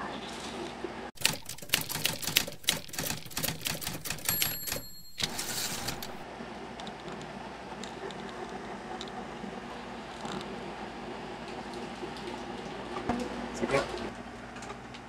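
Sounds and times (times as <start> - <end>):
typewriter bell ding: 1.2 - 6.2
typewriter key clacks: 1.2 - 6.2.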